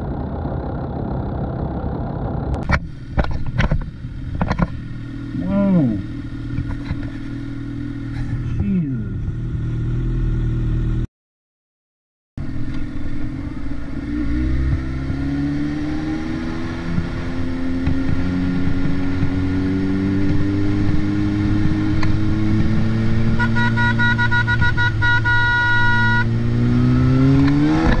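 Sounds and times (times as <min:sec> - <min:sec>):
motorcycle engine accelerating: 0:00.0 - 0:11.1, 0:12.4 - 0:28.0
vehicle horn blasts: 0:23.2 - 0:26.4.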